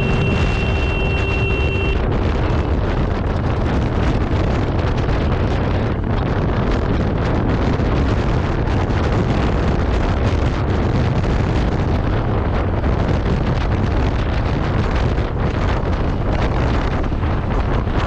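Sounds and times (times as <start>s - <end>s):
low rumble: 0.0s - 18.0s
wind buffeting microphone: 0.0s - 18.0s.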